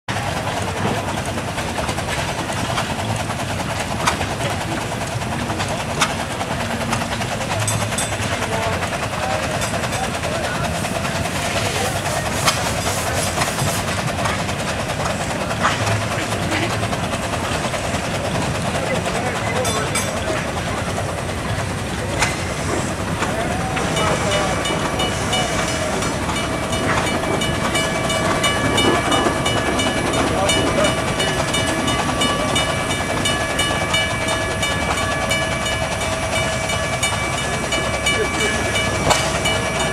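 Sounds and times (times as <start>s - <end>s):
rail car rumble: 0.1s - 39.9s
steam traction engine running: 0.1s - 39.9s
high whine: 19.5s - 39.9s.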